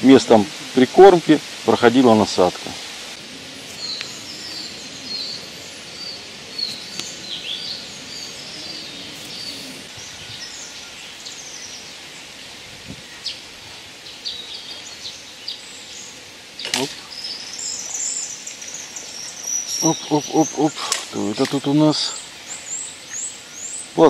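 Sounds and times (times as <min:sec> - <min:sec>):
songbirds chirping: 0:00.0 - 0:24.0
steady outdoor hiss: 0:00.0 - 0:24.0
faint clicks: 0:03.9 - 0:04.2, 0:06.6 - 0:07.2.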